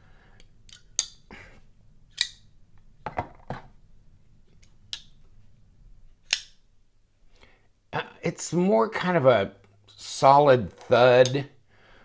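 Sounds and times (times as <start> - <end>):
knife blade clicking into lock: 2.1 - 2.4, 6.2 - 6.6.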